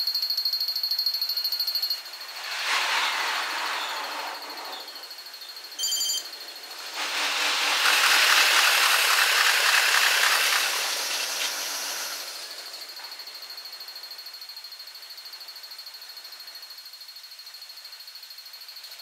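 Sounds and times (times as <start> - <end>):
electric train passing: 2.0 - 13.8
brief high beep: 5.8 - 6.3.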